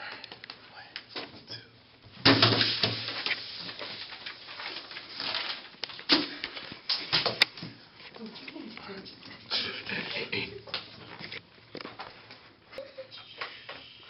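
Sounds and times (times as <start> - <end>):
paper rustling: 2.6 - 8.7.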